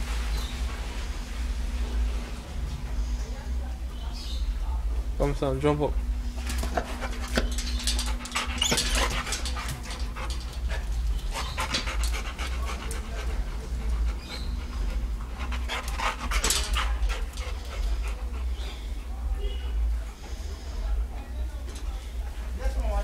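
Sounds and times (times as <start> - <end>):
steady low rumble: 0.0 - 23.0
dog panting: 5.9 - 21.4.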